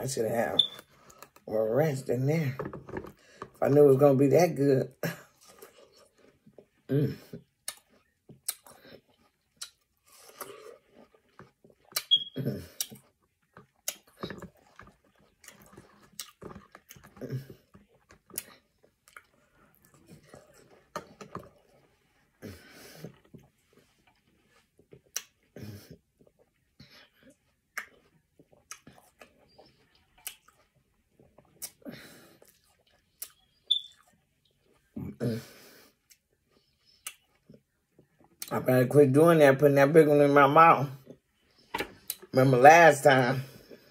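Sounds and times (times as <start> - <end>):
wet chewing of watermelon: 5.1 - 38.7
mouth clicks and lip smacks: 7.3 - 10.6, 11.7 - 21.6, 24.9 - 25.6, 26.2 - 30.7, 31.3 - 31.8, 32.4 - 34.2, 36.0 - 38.6.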